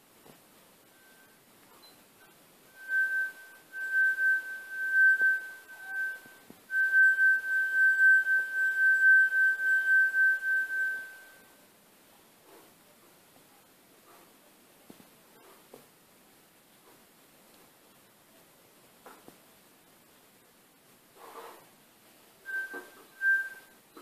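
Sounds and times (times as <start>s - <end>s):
wine glass ringing under finger: 2.7s - 11.5s, 22.5s - 24.0s.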